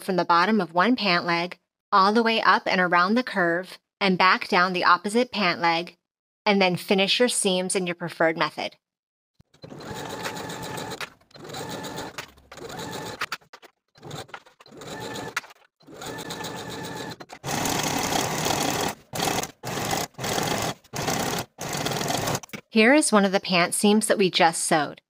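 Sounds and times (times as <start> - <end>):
sewing machine stitching: 9.4 - 22.5.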